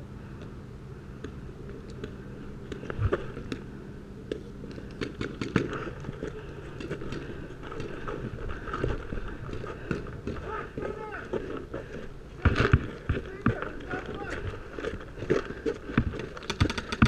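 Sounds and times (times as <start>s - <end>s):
paintball markers firing: 4.3s - 5.9s, 16.0s - 17.0s.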